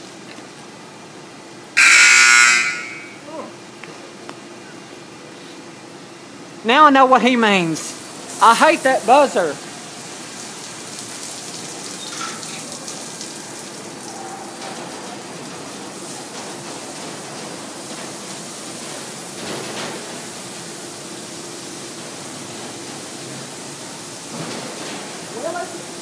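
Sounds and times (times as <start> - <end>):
faint machine hum: 0.0 - 26.0
water spraying: 7.6 - 26.0.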